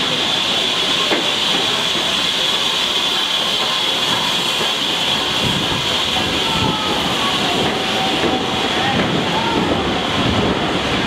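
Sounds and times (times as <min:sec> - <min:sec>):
steam hissing: 0:00.0 - 0:11.0
train coaches rumbling on rails: 0:00.0 - 0:11.0.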